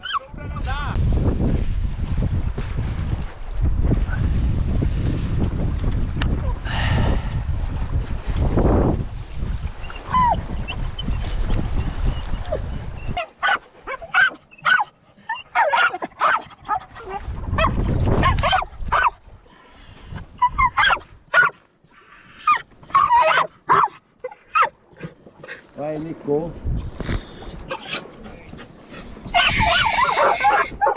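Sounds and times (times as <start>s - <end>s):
wind rumbling on microphone: 0.0s - 14.1s, 16.2s - 21.3s, 24.9s - 30.9s
dogs yelping and whining: 9.8s - 19.1s, 20.4s - 21.5s, 22.2s - 25.6s, 27.7s - 30.9s.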